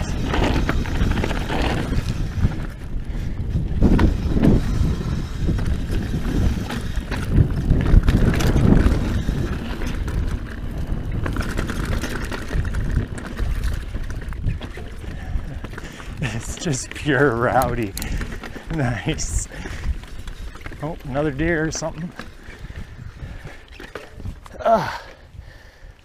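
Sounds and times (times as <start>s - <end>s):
bike clattering over bumps: 0.0s - 24.6s
wind on microphone: 0.0s - 25.9s
tyres crunching over stones: 5.6s - 25.1s.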